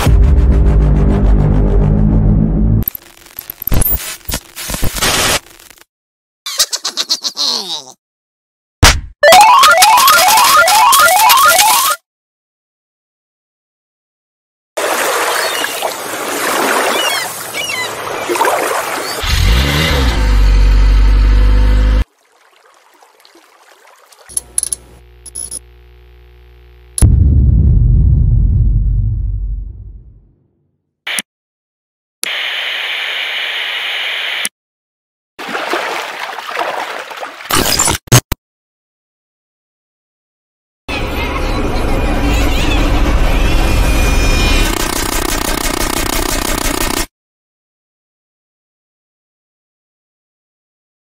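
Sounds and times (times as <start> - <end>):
water running and gurgling: 22.1 - 24.4.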